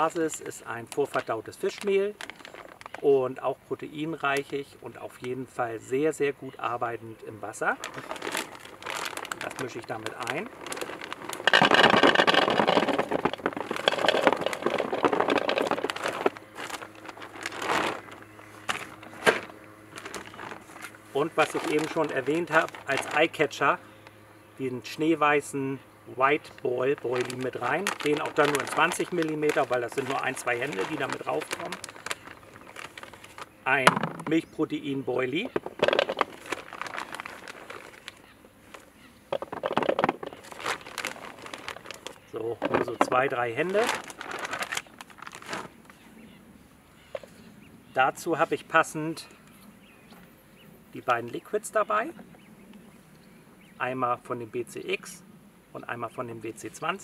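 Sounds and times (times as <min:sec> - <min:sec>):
plastic bag crinkling: 0:00.0 - 0:03.0, 0:07.4 - 0:23.6, 0:26.2 - 0:34.5, 0:35.2 - 0:46.0
hard baits clattering: 0:07.8 - 0:23.3, 0:27.0 - 0:34.4, 0:35.4 - 0:45.7.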